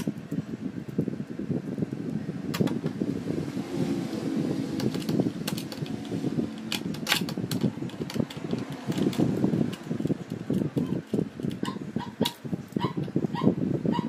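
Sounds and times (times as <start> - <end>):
screwdriver clicking on metal chassis: 4.8 - 12.4.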